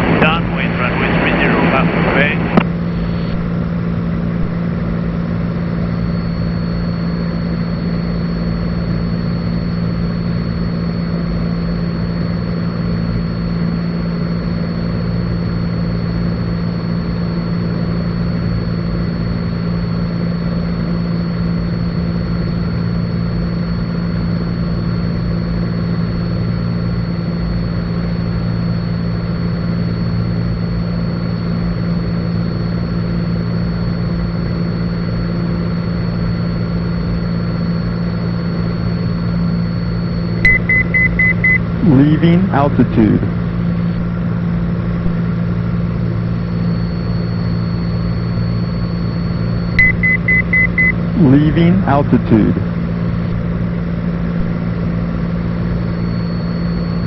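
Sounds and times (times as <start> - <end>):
thin high whine: 0.0 - 5.4, 36.5 - 44.0, 44.9 - 57.0
propeller plane engine droning: 0.0 - 57.0.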